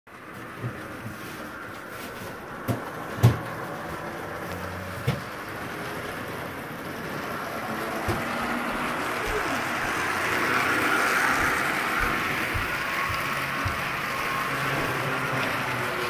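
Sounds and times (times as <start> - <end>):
model train motor whir: 3.9 - 16.0.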